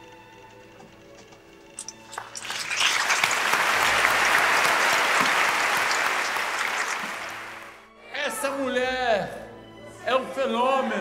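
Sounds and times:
audience applauding: 1.8 - 7.8.

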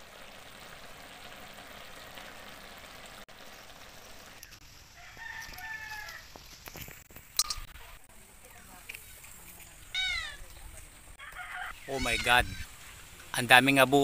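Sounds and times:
rooster crowing: 4.9 - 6.4, 11.2 - 12.2.

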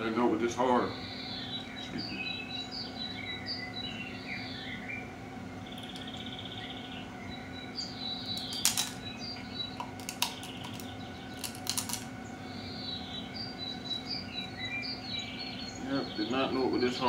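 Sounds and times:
birds chirping: 0.0 - 17.0
crab legs cracking: 8.3 - 9.0, 9.7 - 12.1.

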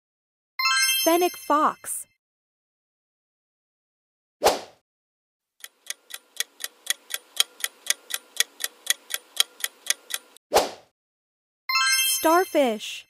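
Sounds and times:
countdown timer ticking: 5.6 - 10.4.

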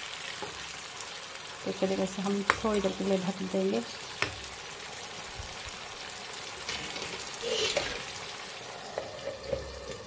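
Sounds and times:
curry sizzling in frying pan: 0.0 - 10.0
scrape in pan: 6.7 - 8.2.

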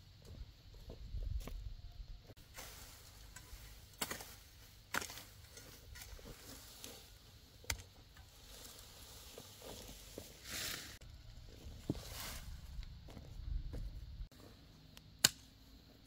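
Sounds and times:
rustling of cut plants: 2.3 - 14.7
hoe chopping into soil: 3.4 - 6.5.

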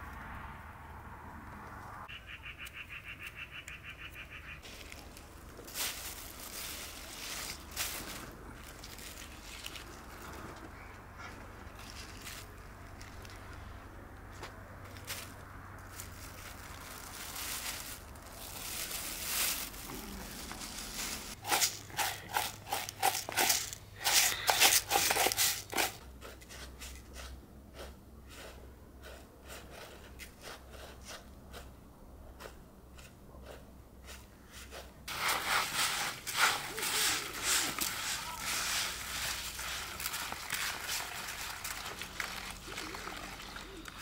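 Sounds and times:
plastic bag crinkling: 4.6 - 10.5, 15.0 - 25.9, 35.1 - 44.0
sharp crackles: 14.8 - 21.4.

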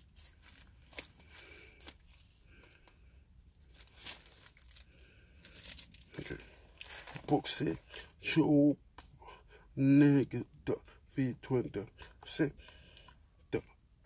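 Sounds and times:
pages rustling and crinkling: 0.0 - 7.4.

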